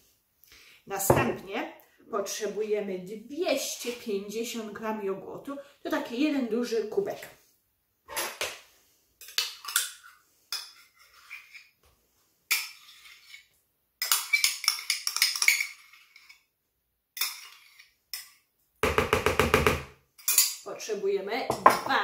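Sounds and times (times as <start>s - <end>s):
metal spoon scraping yogurt: 10.6s - 11.8s, 12.5s - 16.5s, 17.2s - 18.0s.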